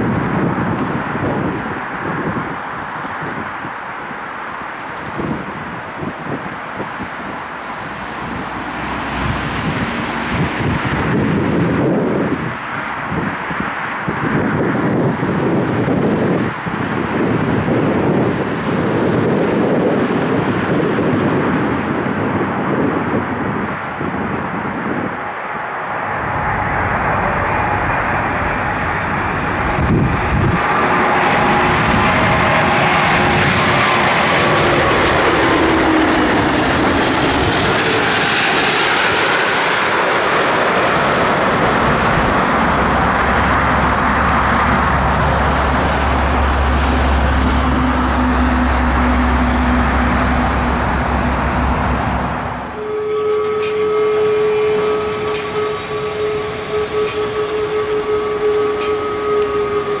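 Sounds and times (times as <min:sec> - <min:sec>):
deep rumble of airliner rolling: 0:00.0 - 1:00.0
jet airliner passing overhead: 0:00.0 - 1:00.0.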